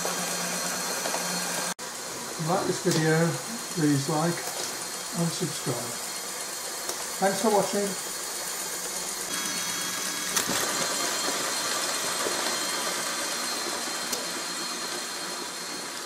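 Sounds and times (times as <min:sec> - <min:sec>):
toy tractor motor whirring: 0:02.5 - 0:16.0.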